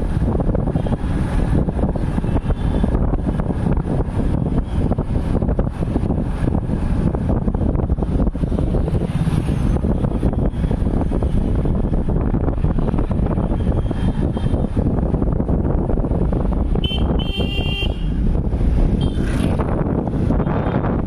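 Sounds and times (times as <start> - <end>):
vehicle rumbling: 0.0 - 21.0
wind buffeting microphone: 0.0 - 21.0
vehicle horn honking: 16.8 - 18.2, 19.0 - 19.4.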